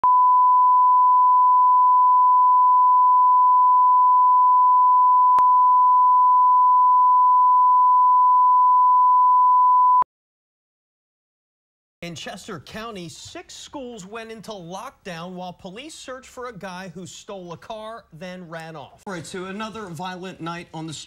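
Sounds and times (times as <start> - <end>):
steady test tone beep: 0.0 - 10.0.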